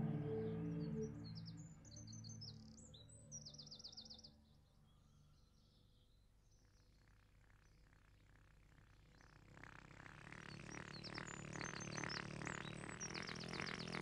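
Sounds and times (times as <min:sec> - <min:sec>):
birds chirping: 0:08.9 - 0:14.0.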